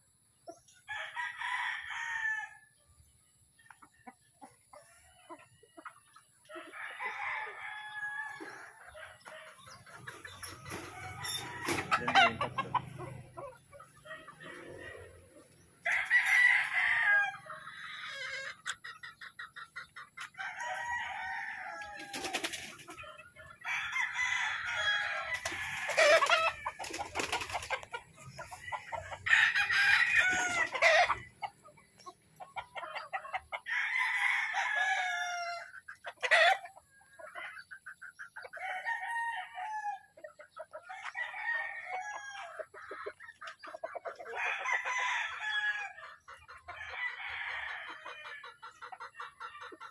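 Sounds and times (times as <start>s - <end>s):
roosters crowing: 0.8s - 2.8s, 6.4s - 18.6s, 20.2s - 31.5s, 33.0s - 36.7s, 38.6s - 42.8s, 44.2s - 48.7s.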